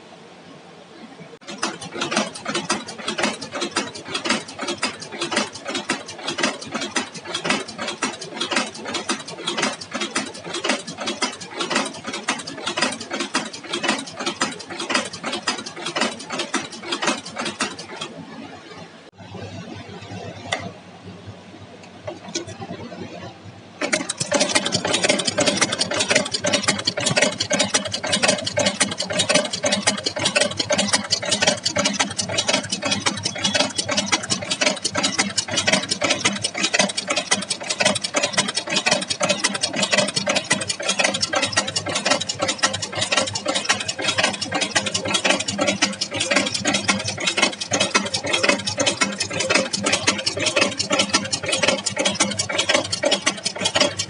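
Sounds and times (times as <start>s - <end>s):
chain making machine clattering: 1.4s - 18.2s, 23.8s - 54.0s.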